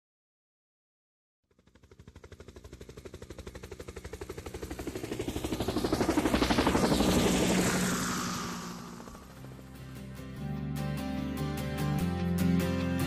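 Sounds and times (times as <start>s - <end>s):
helicopter rotor chop: 1.4s - 10.4s.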